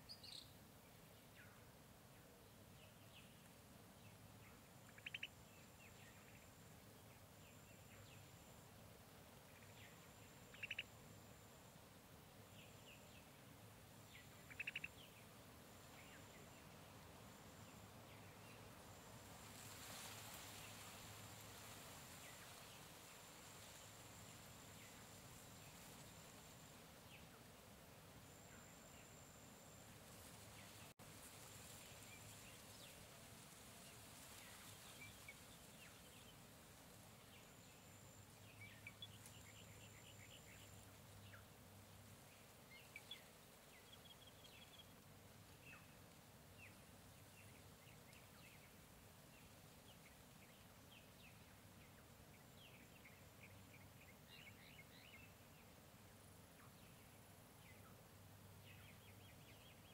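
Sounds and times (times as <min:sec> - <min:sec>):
steady hiss: 0:00.0 - 0:59.9
bird chirps: 0:04.5 - 0:06.6, 0:09.5 - 0:11.0, 0:14.1 - 0:15.3.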